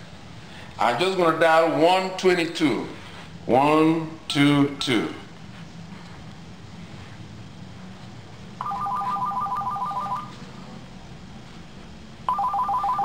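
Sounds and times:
cordless phone warbling ring: 8.6s - 10.3s, 12.3s - 13.0s.

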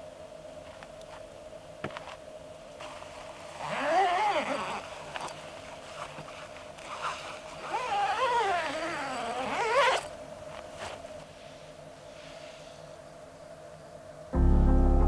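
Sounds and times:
tent zipper rasping: 2.8s - 11.2s.

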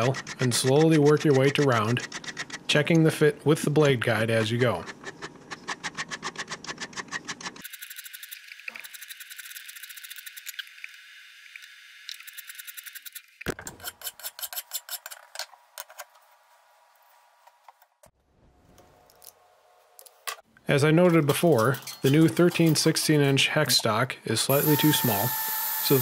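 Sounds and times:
hand file rasping on steel: 0.0s - 2.6s.

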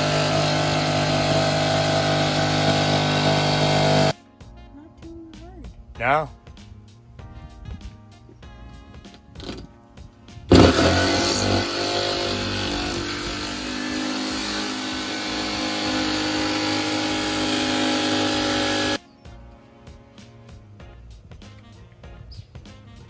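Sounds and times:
jigsaw cutting thin metal: 0.0s - 4.2s, 10.5s - 19.0s
faint background music: 4.1s - 11.0s, 19.0s - 23.0s.

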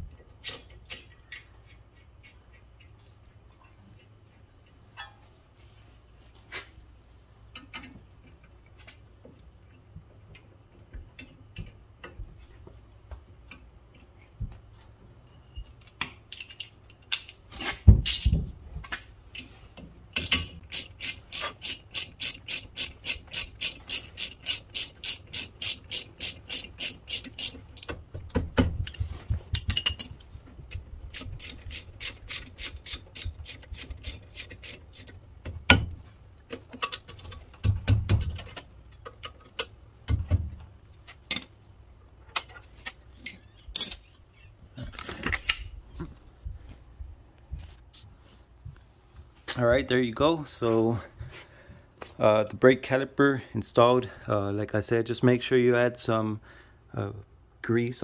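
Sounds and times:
ratchet wrench clicking: 20.2s - 27.9s, 31.1s - 35.1s.

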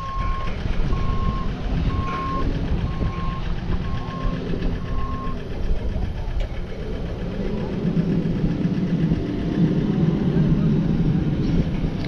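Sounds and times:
reversing alarm beeping: 0.0s - 5.4s
low engine rumble: 0.0s - 12.0s.

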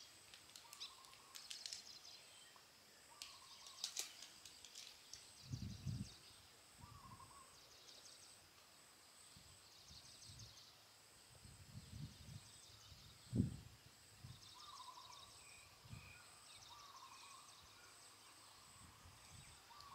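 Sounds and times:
bird calling: 0.0s - 2.4s, 16.2s - 18.1s, 19.5s - 19.9s
insects chirping: 0.0s - 19.9s.

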